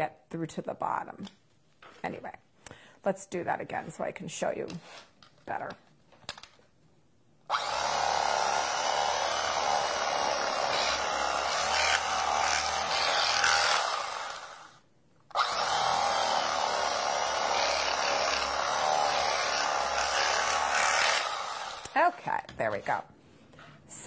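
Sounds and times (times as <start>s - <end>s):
electric knife sawing bread: 7.5s - 14.8s, 15.4s - 22.0s.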